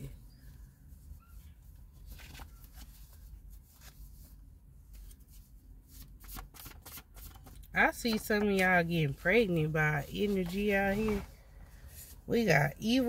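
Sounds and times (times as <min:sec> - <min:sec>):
cards shuffling: 0:02.0 - 0:04.3, 0:04.9 - 0:11.3.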